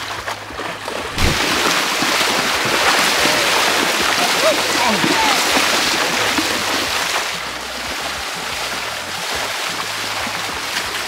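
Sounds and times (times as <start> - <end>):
horses splashing through water: 0.0 - 11.0.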